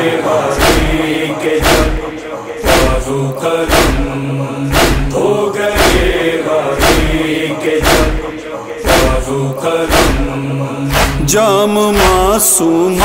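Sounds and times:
men chanting a droning refrain: 0.0 - 13.0
deep chest-beating thumps: 1.6 - 3.1, 3.7 - 5.2, 7.8 - 8.2, 9.9 - 10.3.

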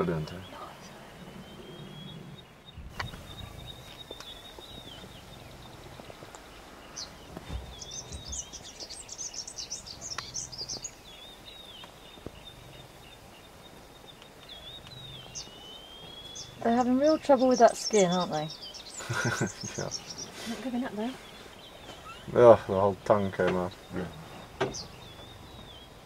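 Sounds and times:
birds chirping: 0.0 - 26.0
faint knocks: 24.6 - 24.9.

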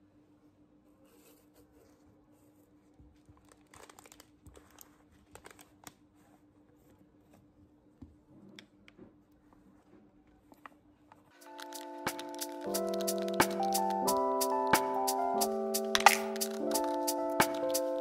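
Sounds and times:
packaging seal crinkling and tearing: 3.4 - 6.0.

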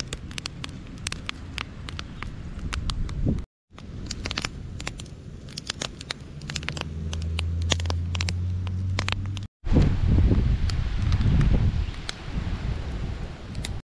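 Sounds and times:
wood fire crackling and popping: 0.0 - 9.5.

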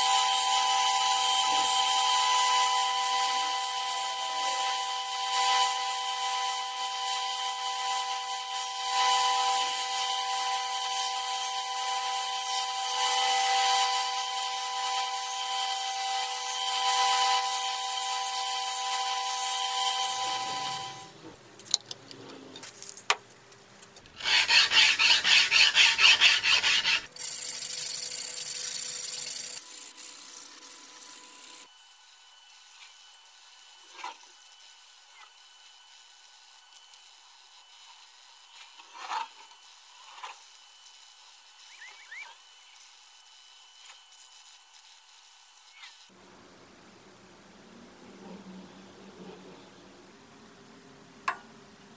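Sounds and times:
abrasive rasping on metal: 24.2 - 27.1.

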